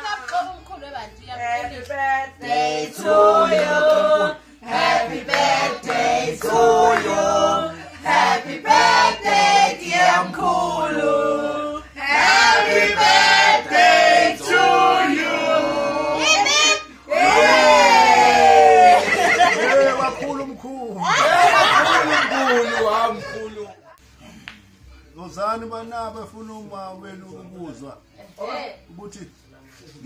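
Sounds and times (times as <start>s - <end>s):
group singing unaccompanied: 1.4s - 20.2s.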